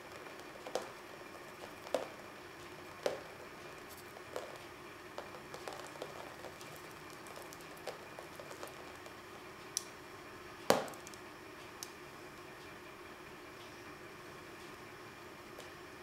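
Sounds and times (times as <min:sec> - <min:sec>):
paint drips spattering on canvas: 0:00.1 - 0:02.2, 0:02.9 - 0:10.0.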